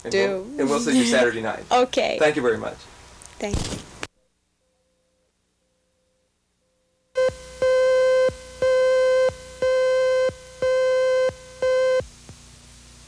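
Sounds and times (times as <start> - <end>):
tape hiss: 0.0 - 13.0
electronic beeps: 7.2 - 12.0.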